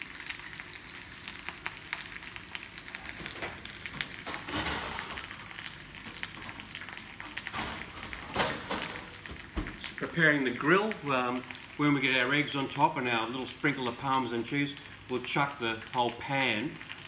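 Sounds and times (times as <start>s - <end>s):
potato frying in oil: 0.0s - 17.0s.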